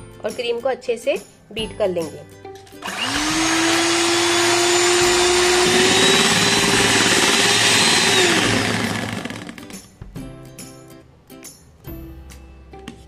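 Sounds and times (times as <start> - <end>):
beaters whipping cream in steel bowl: 2.8 - 9.7
electric hand mixer whining: 2.8 - 9.8.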